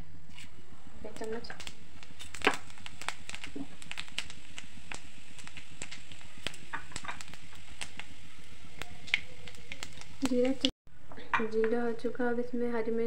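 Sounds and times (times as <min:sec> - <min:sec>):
seeds popping in hot fat: 0:00.3 - 0:10.7.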